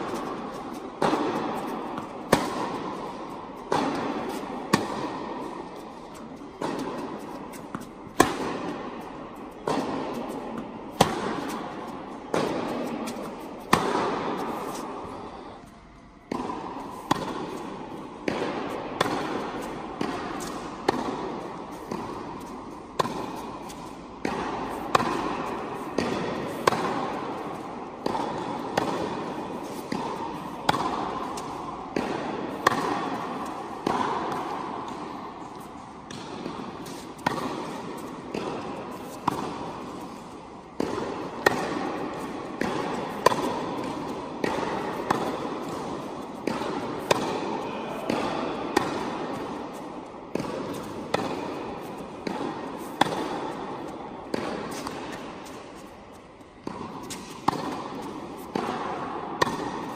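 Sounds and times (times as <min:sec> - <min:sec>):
tennis ball bouncing on hard court: 0:00.0 - 0:59.9
tennis ball hit with rackets: 0:00.0 - 0:59.9.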